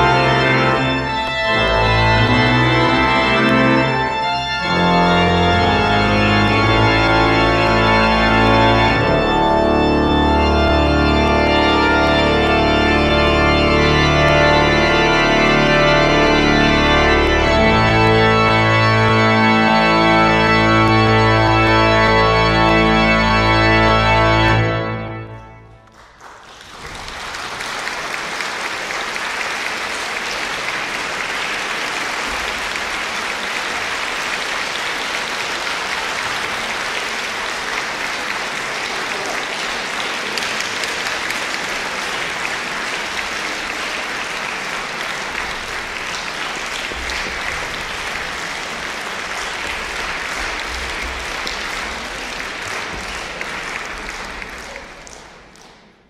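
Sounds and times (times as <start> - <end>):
audience applause: 0.0 - 23.8, 24.5 - 56.0
pipe organ chord: 0.0 - 25.9.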